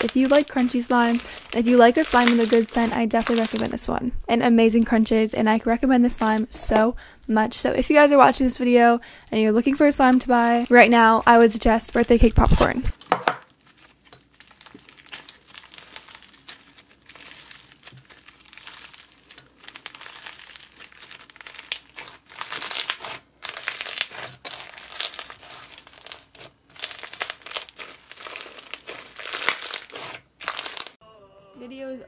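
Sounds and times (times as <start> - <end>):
crunchy slime being squeezed: 0.0 - 3.7, 13.5 - 31.0.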